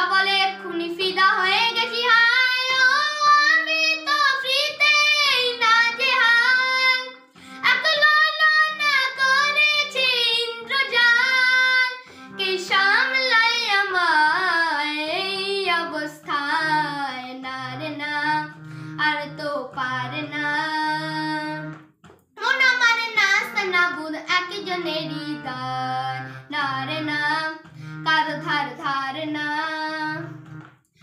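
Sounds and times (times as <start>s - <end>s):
boy singing: 0.0s - 21.8s, 22.4s - 30.4s.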